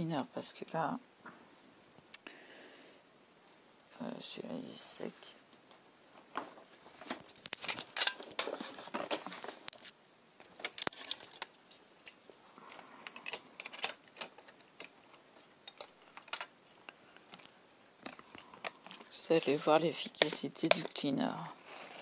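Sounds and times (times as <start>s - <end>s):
craft supplies clicking and knocking: 13.0s - 16.6s, 20.0s - 21.1s.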